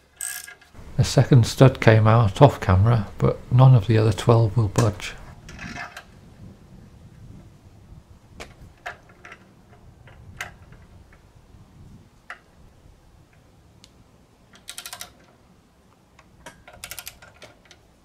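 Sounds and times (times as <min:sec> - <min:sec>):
socket ratchet clicking: 0:14.5 - 0:15.2, 0:16.4 - 0:17.8.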